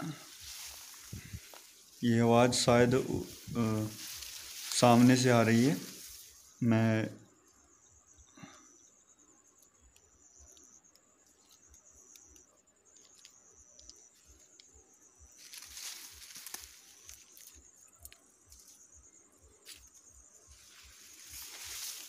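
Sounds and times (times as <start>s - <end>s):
rustling of rice stalks: 0.0s - 6.7s, 15.3s - 18.8s, 19.6s - 22.0s
high insect trill: 0.0s - 22.0s.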